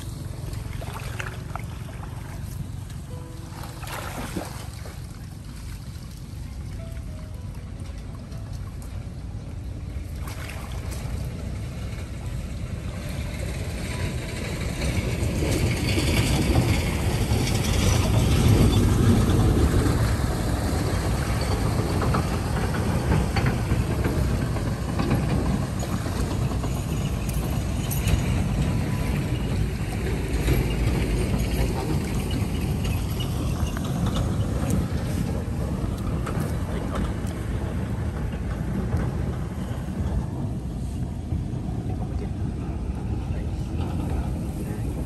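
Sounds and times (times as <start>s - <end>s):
muddy water sloshing: 0.0s - 12.2s
steady low rumble: 0.0s - 45.0s.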